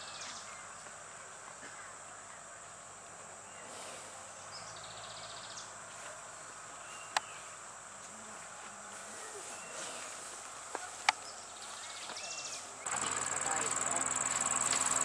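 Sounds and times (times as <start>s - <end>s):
high insect drone: 9.0s - 15.0s
buzzing insect trill: 12.9s - 15.0s.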